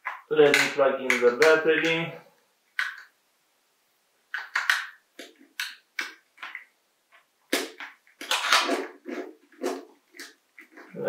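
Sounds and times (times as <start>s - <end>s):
plastic clicks and scrapes: 4.3s - 11.0s.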